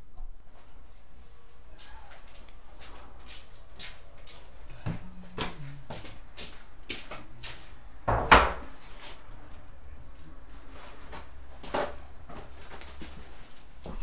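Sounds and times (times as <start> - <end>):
low steady hum: 0.0 - 14.0
loud knock: 8.1 - 8.7.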